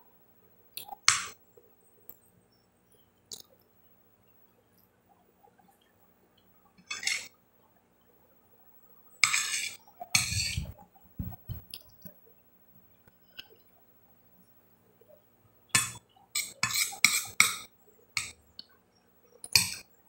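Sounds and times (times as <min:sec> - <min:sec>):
spoon scraping glass bowl: 0:06.8 - 0:07.3, 0:09.2 - 0:10.8, 0:16.4 - 0:18.3.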